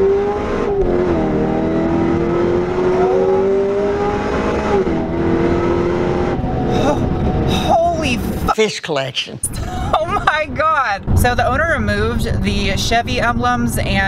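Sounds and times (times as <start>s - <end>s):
car engine accelerating hard: 0.0s - 8.5s.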